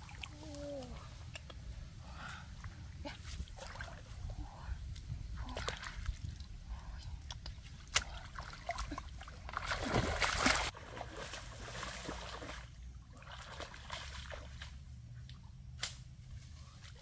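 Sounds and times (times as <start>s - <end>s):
feet wading through muddy water: 2.0s - 14.9s.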